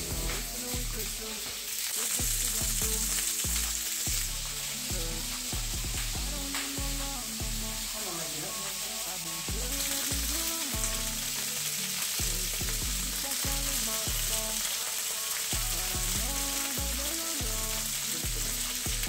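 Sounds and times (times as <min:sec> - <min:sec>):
sausage sizzling in a skillet: 0:00.0 - 0:19.0.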